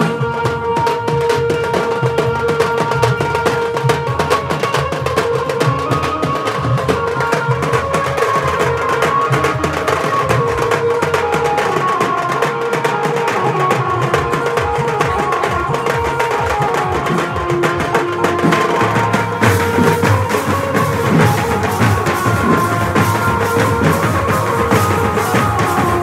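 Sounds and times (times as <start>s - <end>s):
held melody line: 0.0s - 26.0s
large drums beaten fast: 14.0s - 26.0s.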